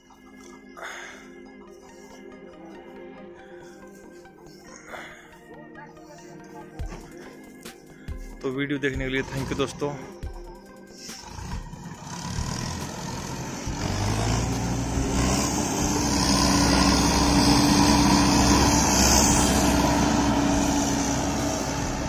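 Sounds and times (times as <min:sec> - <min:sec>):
combine harvester engine running: 0:11.1 - 0:22.0.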